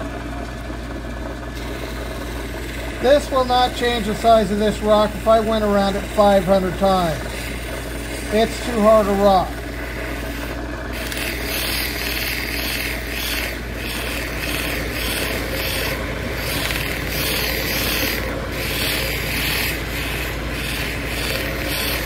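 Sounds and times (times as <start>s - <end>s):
motor humming: 0.0s - 22.0s
stone rubbing on sanding wheel: 1.6s - 4.1s, 6.9s - 22.0s.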